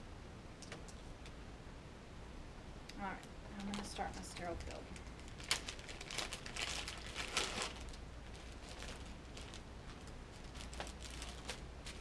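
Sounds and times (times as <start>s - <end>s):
paper wrapper crinkling: 3.5s - 12.0s.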